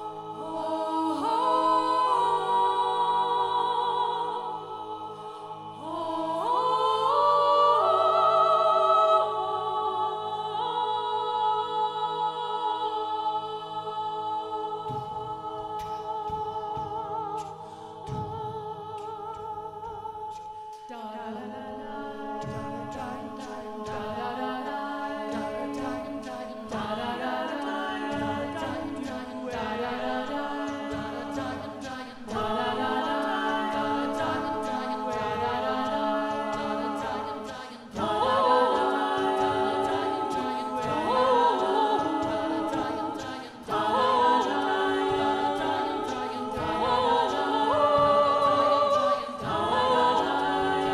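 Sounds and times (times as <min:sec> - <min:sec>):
a cappella choir singing: 0:00.0 - 0:50.9.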